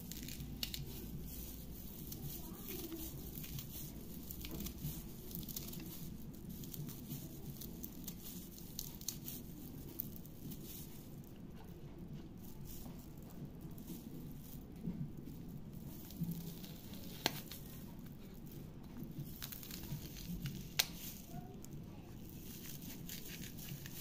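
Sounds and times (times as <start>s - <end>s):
low steady hum: 0.0s - 24.0s
knife cutting chillies: 22.3s - 24.0s.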